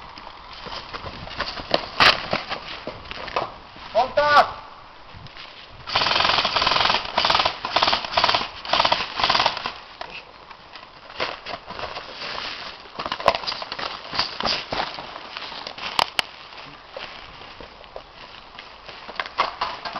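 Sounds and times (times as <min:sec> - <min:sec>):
airsoft guns firing bursts: 0:05.9 - 0:09.8.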